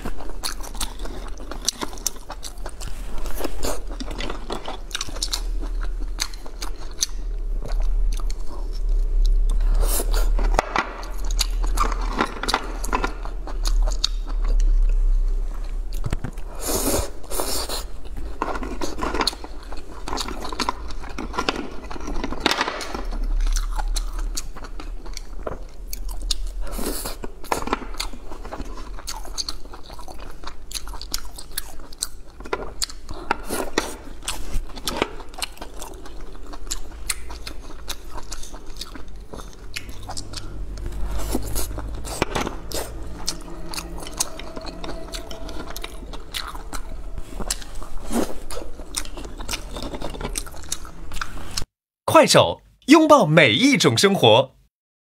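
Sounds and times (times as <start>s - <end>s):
chewing and biting oysters: 0.0s - 51.7s.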